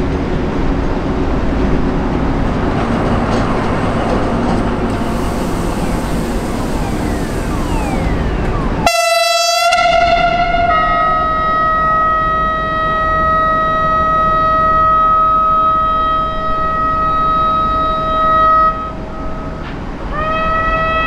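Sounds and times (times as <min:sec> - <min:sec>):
locomotive horn: 0:04.8 - 0:21.0.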